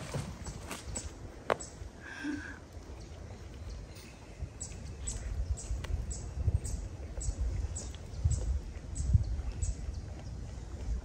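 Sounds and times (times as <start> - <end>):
wind rumble on microphone: 2.8 - 11.0.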